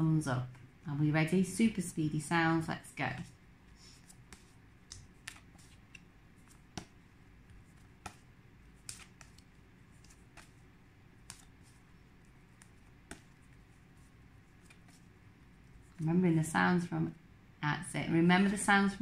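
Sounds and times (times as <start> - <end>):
paper cards flipping snaps: 4.0 - 7.0, 7.7 - 8.2, 8.8 - 10.6, 11.2 - 11.8, 12.4 - 13.4.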